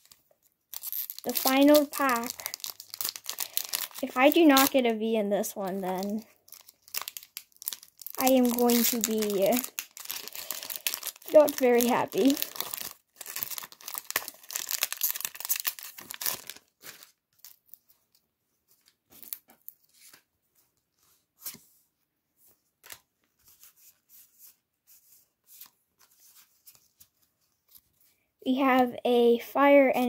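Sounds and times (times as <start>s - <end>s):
foil pack crinkling: 0.0s - 4.9s, 5.5s - 17.8s.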